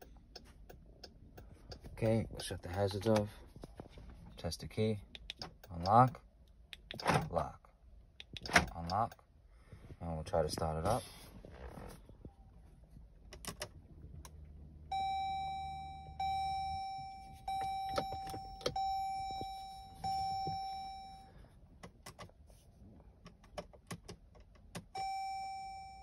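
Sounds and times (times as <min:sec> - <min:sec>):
dashboard warning chime: 0:14.9 - 0:21.4, 0:25.0 - 0:26.0.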